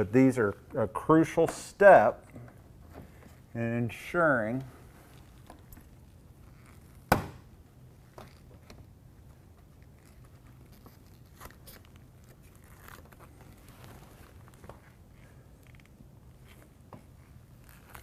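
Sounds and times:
low steady room hum: 0.0 - 18.0
faint clicks and rustles: 4.5 - 18.0.

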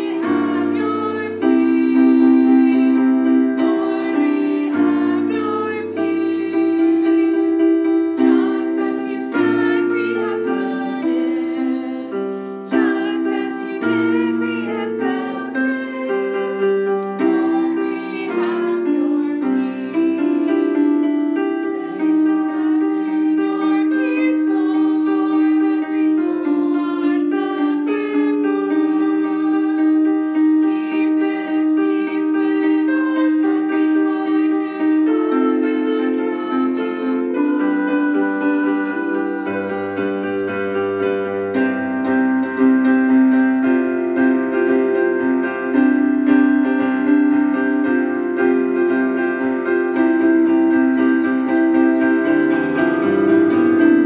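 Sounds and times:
keyboard playing slow hymn chords: 0.0 - 54.0.

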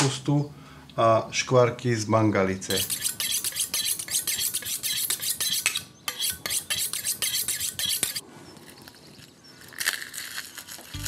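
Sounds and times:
knife scraping on sharpening steel: 2.7 - 8.2.

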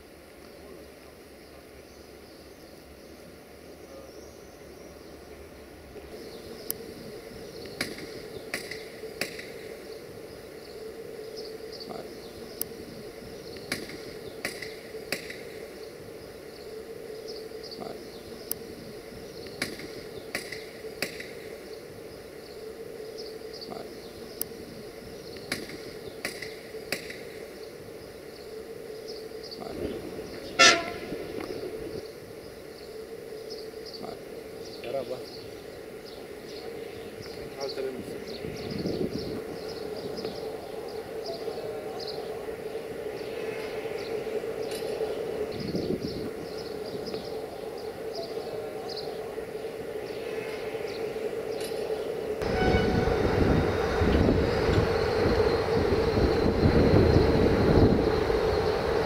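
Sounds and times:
steady hum: 0.0 - 59.0
short horn toot: 30.6 - 31.2, 52.4 - 53.4.

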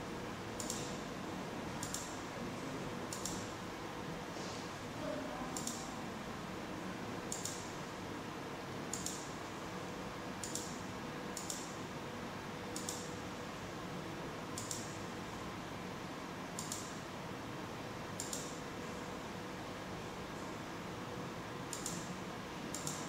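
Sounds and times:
computer mouse clicking: 0.6 - 0.9, 1.8 - 2.1, 3.1 - 3.4, 5.6 - 5.9, 7.3 - 7.6, 8.9 - 9.3, 10.4 - 10.7, 11.4 - 11.7, 12.8 - 13.1, 14.6 - 14.9, 16.6 - 16.9, 18.2 - 18.6, 21.7 - 22.1, 22.7 - 23.0.

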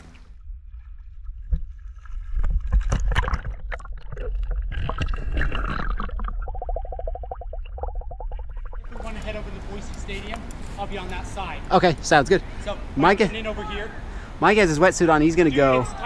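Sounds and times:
river current heard underwater: 0.0 - 9.0.

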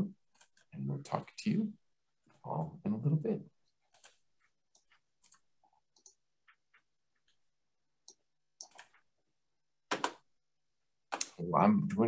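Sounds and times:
faint clicks and ticks: 3.9 - 9.1.

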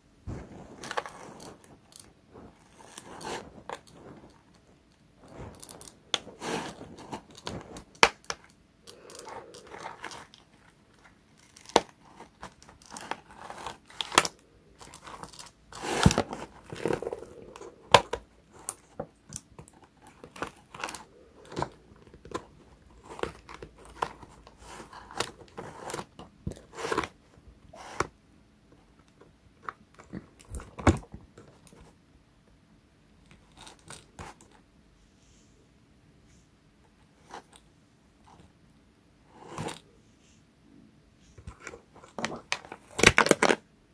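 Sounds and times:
toy packaging crinkling and tearing: 5.5 - 27.1, 42.0 - 43.6.

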